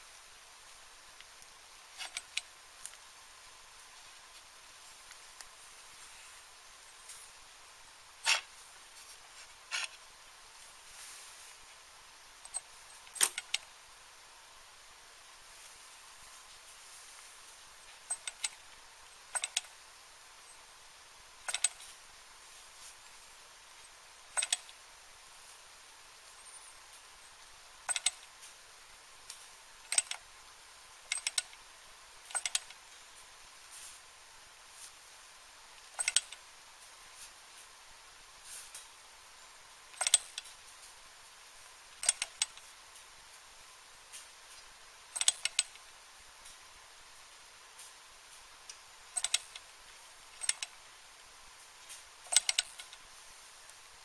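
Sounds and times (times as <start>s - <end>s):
sharp metal clicks of engine: 12.4s - 13.7s, 18.0s - 18.6s, 19.3s - 19.7s, 21.5s - 21.9s, 24.4s - 24.7s, 27.9s - 28.3s, 29.9s - 30.2s, 31.1s - 31.6s, 32.3s - 32.8s, 35.9s - 36.4s, 40.0s - 40.5s, 42.0s - 42.7s, 45.2s - 45.8s, 49.2s - 49.6s, 50.4s - 50.8s, 52.2s - 53.0s.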